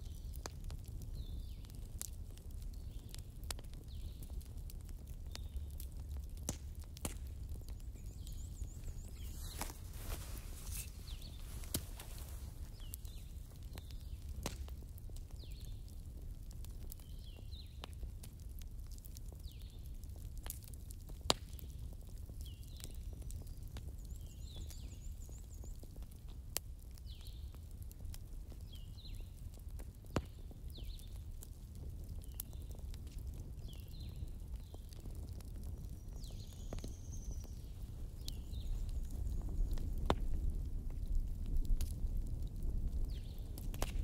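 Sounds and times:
fire pops: 0.0s - 44.0s
wood fire crackling: 0.0s - 44.0s.

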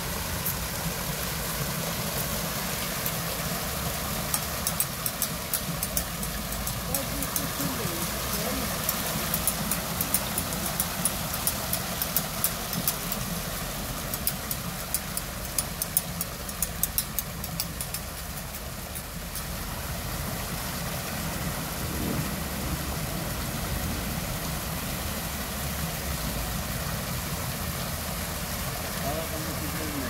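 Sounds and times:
fountain water splashing: 0.0s - 30.0s
sharp ticks: 4.3s - 13.4s, 14.0s - 19.5s.

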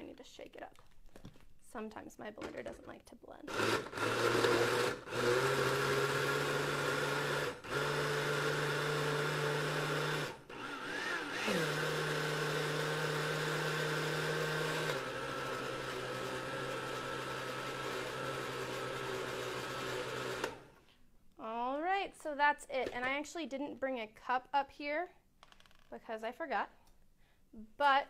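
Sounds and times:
blender running: 3.5s - 20.8s.

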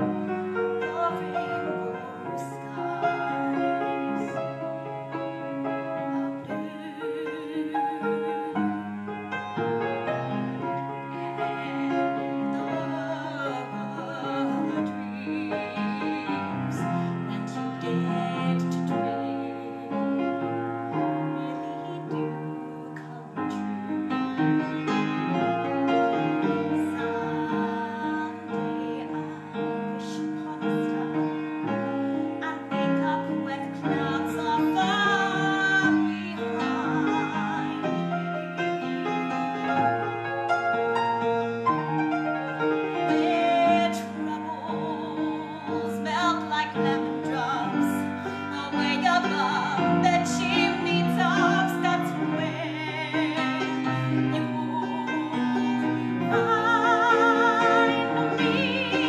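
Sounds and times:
woman singing with vibrato: 0.0s - 41.3s, 42.4s - 59.0s
piano: 0.0s - 59.0s.

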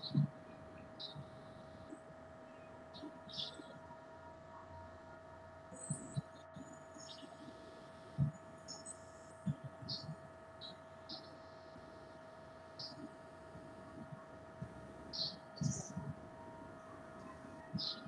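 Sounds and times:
electrical hum with whine: 0.0s - 18.0s.

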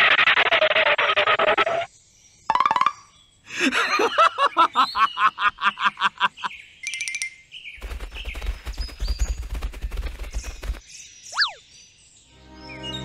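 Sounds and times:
cartoon laughing: 3.6s - 6.5s.

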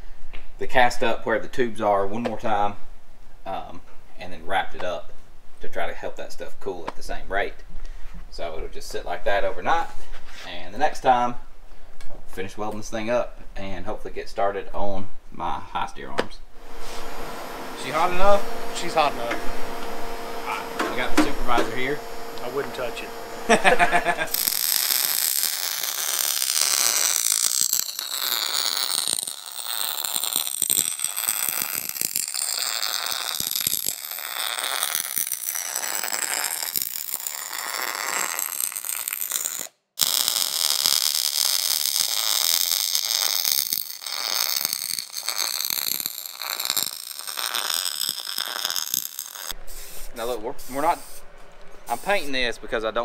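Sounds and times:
welding arc crackling: 16.6s - 52.6s.

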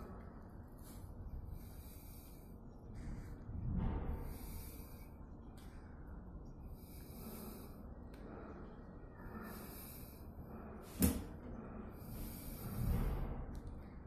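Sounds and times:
faint breathing: 0.0s - 14.0s
low rumble: 2.6s - 9.7s.

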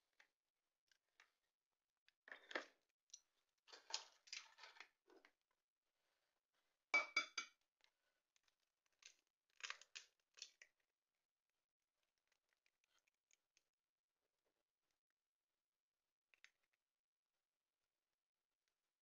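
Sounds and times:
clicks and clinks of utensils: 7.0s - 7.6s.

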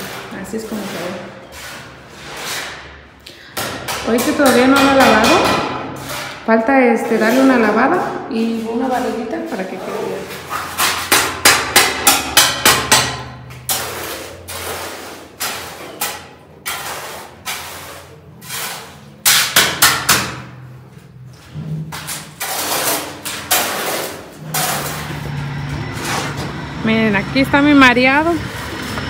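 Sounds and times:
hammering knocks: 3.6s - 6.0s.

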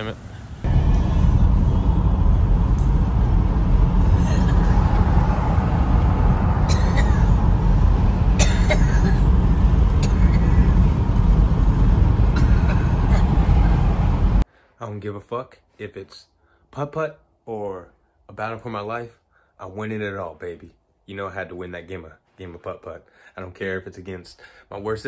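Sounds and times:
car cabin rumble: 0.6s - 14.4s.

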